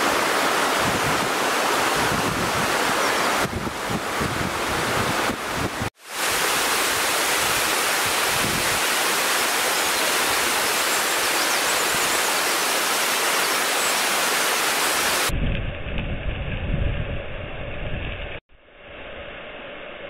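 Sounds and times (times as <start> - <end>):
waterfall rushing: 0.0 - 15.3.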